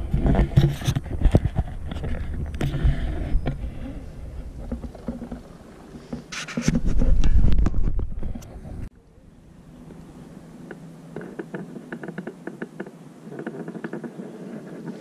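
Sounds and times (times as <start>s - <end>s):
wind buffeting microphone: 0.0s - 8.9s.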